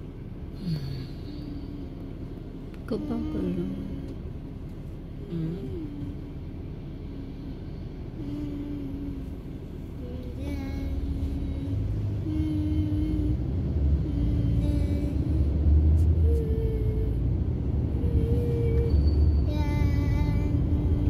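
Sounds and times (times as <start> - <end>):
car road and engine rumble: 0.0 - 21.0.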